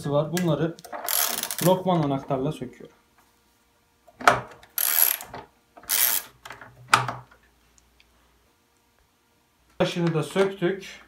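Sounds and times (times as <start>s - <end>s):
rapid ratchet clicking: 1.1s - 1.7s, 4.8s - 6.3s.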